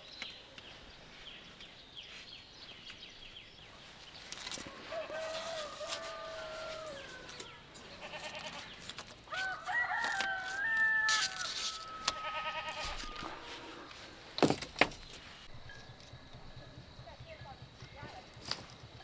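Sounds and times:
rooster crowing: 4.6 - 8.5, 9.2 - 14.0.

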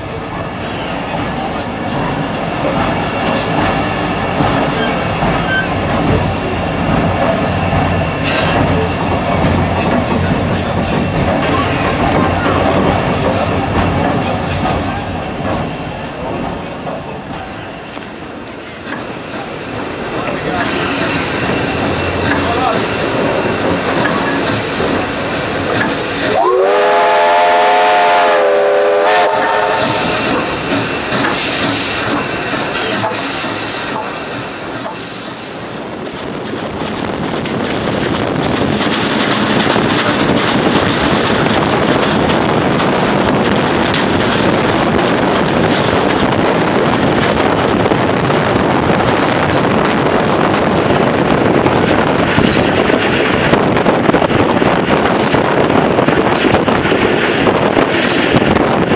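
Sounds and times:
train running on track: 0.0 - 58.9
steam locomotive whistle: 26.2 - 30.5.

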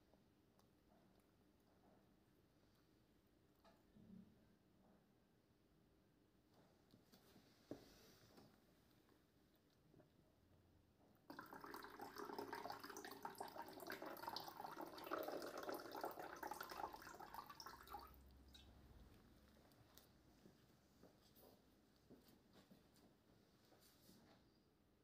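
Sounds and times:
running splashing water: 11.3 - 18.2.

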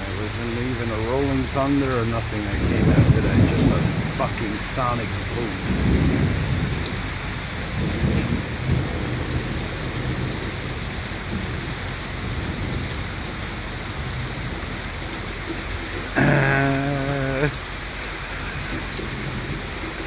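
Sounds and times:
heavy rain falling: 0.0 - 20.0
low rumble of thunder: 2.5 - 15.3.

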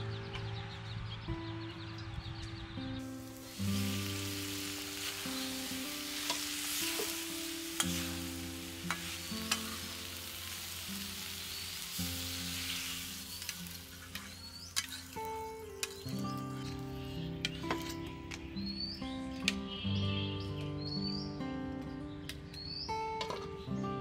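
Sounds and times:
soft background music: 0.0 - 24.0
food sizzling in a pan: 3.0 - 17.8.

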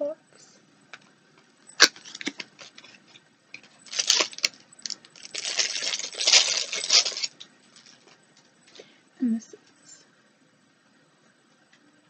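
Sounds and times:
plastic wrapper crinkling: 1.8 - 8.2.

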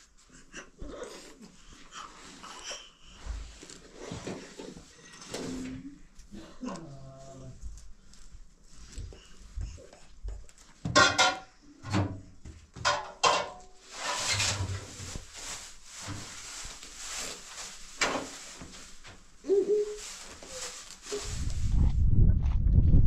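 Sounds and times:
soft steady rustle: 0.0 - 10.8, 13.6 - 22.6
kitchen knocks and clatters: 10.8 - 15.1.

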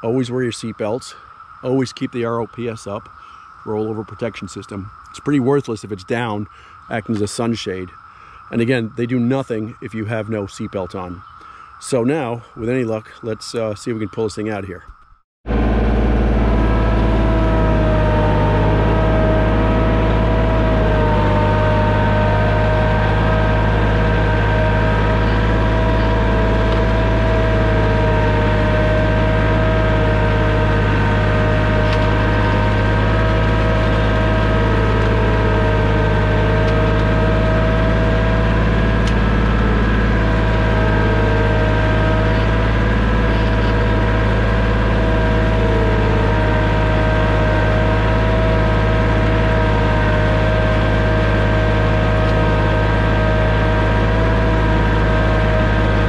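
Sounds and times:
steady whine: 0.0 - 56.0
tractor engine running under load: 15.5 - 56.0.

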